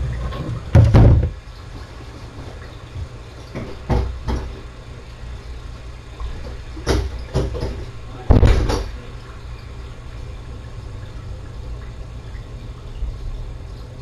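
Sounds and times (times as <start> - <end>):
loud low thump: 0.7 - 1.4.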